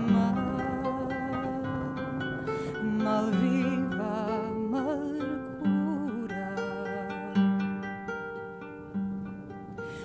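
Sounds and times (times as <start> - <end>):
slow plucked guitar music: 0.0 - 10.0.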